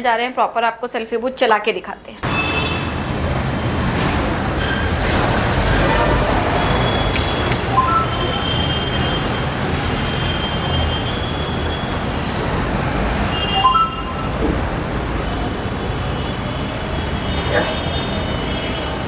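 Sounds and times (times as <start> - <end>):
short electronic beeps: 6.8 - 9.4, 13.4 - 14.4.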